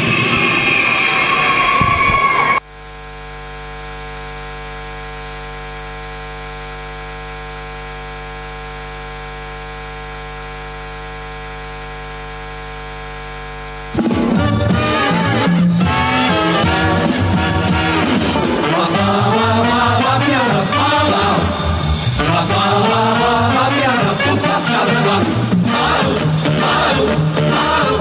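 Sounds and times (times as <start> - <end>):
high whine: 0.0 - 28.0
music: 14.0 - 28.0.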